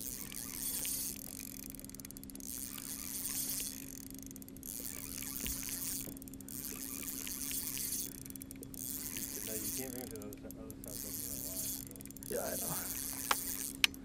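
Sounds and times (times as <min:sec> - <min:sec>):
steady low hum: 0:00.0 - 0:14.0
faint clicks: 0:00.1 - 0:14.0
water and wind hiss: 0:10.9 - 0:13.8.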